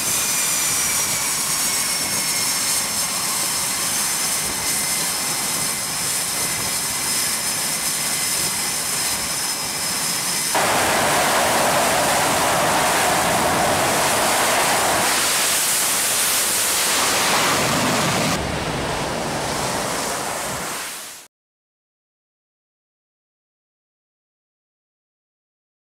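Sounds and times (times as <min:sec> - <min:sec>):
jet engines running: 0:00.0 - 0:21.3
high whine: 0:10.5 - 0:21.2.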